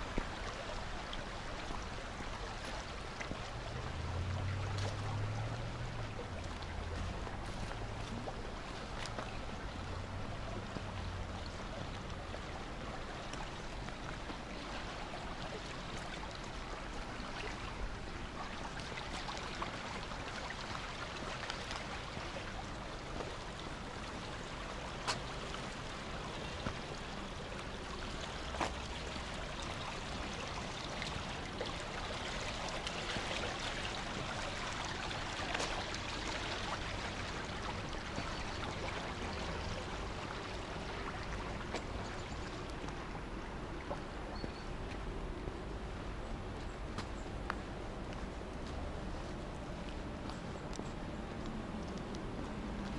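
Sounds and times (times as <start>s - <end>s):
water rushing through channel: 0.0s - 46.6s.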